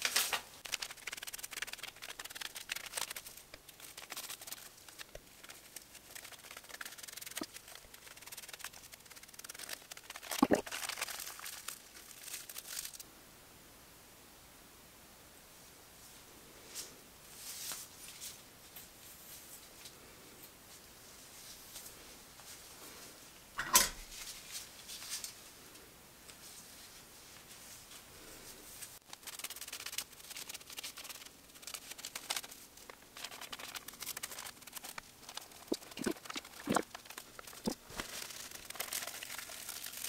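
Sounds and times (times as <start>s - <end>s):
foil crinkling and rustling: 0.0s - 13.0s, 28.8s - 40.0s.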